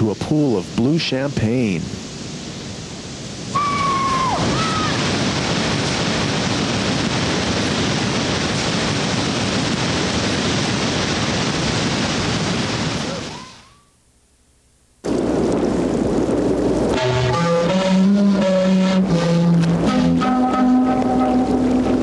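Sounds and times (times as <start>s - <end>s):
roar of whitewater rapids: 3.5s - 9.6s
high whistle-like tone: 13.3s - 14.0s.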